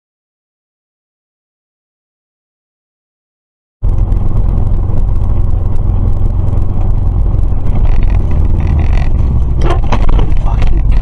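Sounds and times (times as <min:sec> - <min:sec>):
car engine and road noise: 0:03.8 - 0:11.0.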